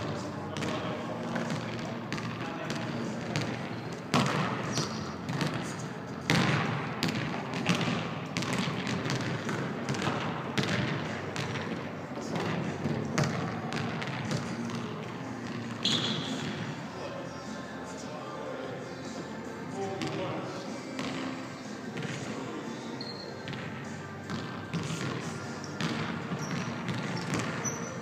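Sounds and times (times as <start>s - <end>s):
basketballs bouncing on hardwood: 1.4s - 2.8s, 3.4s - 5.6s, 6.3s - 14.8s, 25.8s - 27.8s
shoe squeak: 4.7s - 5.2s, 15.8s - 16.4s, 23.0s - 23.4s, 25.6s - 28.0s.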